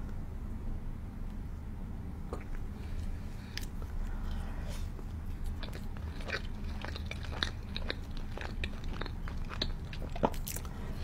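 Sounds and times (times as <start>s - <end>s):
biting and chewing pizza: 3.4s - 11.0s.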